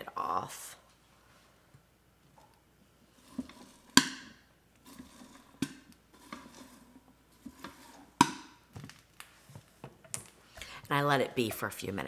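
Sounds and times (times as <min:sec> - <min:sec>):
spatula rustling popped corn: 0:03.0 - 0:04.0, 0:04.8 - 0:08.3
popcorn kernels popping: 0:03.9 - 0:06.7, 0:07.5 - 0:09.3.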